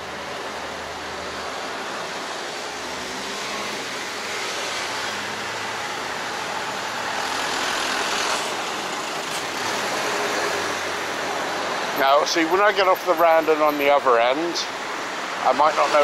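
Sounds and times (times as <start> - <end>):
small truck passing: 0.0 - 12.0
passing cars: 0.0 - 16.0.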